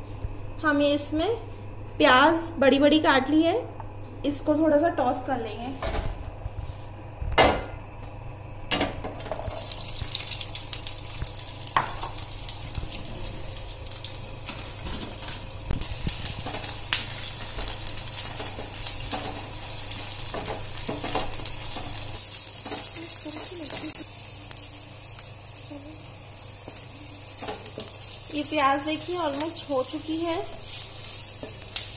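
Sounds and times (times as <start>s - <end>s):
onions sizzling in hot oil: 9.2s - 31.9s.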